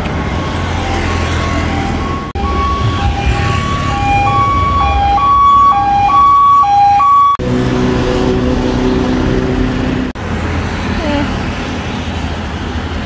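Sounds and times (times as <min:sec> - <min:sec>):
street traffic rumble: 0:00.0 - 0:13.0
two-tone siren: 0:00.5 - 0:08.6.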